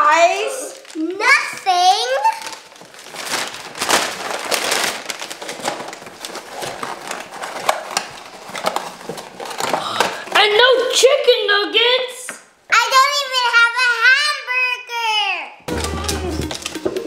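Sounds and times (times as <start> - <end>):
paper packaging rustling: 0.6 - 10.4, 15.7 - 17.0.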